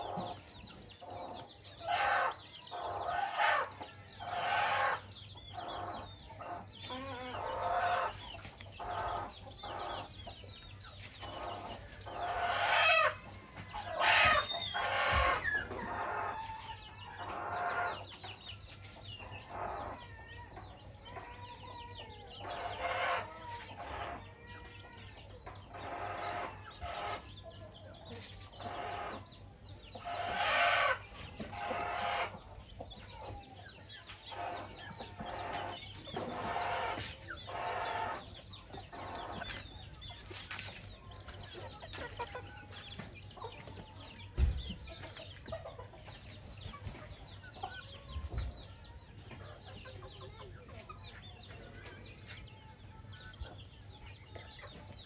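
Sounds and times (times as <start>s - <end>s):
chickens clucking: 0.0s - 55.0s
roosters crowing: 11.4s - 18.0s, 30.0s - 32.5s, 34.3s - 39.4s.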